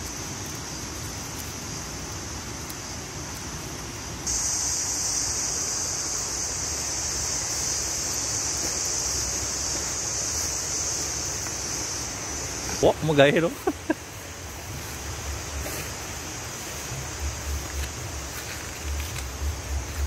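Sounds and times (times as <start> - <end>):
insects droning: 0.0 - 20.0
low rumble: 16.9 - 20.0.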